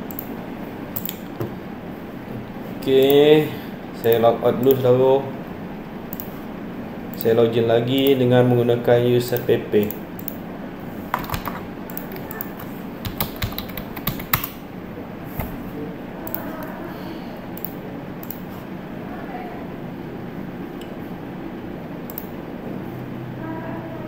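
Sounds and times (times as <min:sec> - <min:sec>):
steady low hum: 0:00.0 - 0:24.0
keyboard key clicks: 0:11.2 - 0:14.6.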